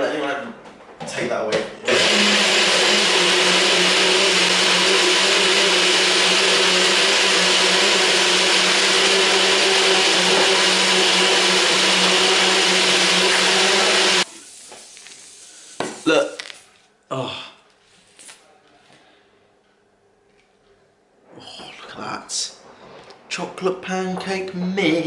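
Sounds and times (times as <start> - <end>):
blender motor whining: 1.9 - 14.3.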